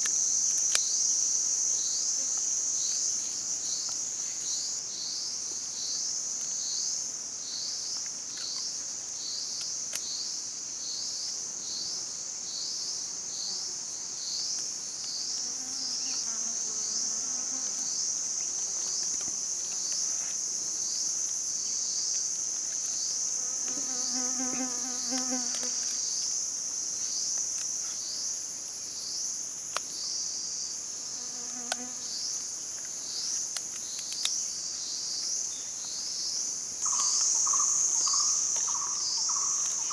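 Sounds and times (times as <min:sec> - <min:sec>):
forest insects buzzing: 0:00.0 - 0:39.9.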